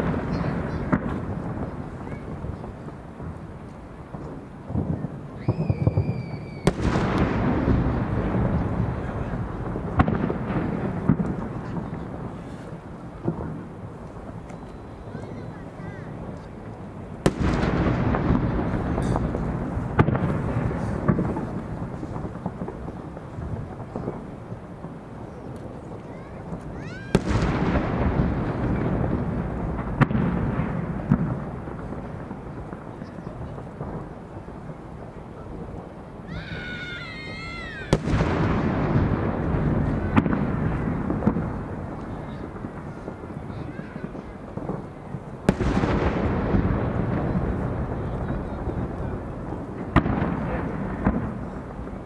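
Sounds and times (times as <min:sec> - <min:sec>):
sharp cracks: 0:00.0 - 0:15.4, 0:16.3 - 0:24.2, 0:25.5 - 0:34.1, 0:36.3 - 0:52.0
firework shell booming: 0:00.0 - 0:25.1, 0:26.2 - 0:52.0
long rolling echo: 0:00.0 - 0:52.0
wavering high whistle: 0:05.4 - 0:06.8
firework shell bursting boom: 0:17.2 - 0:22.8.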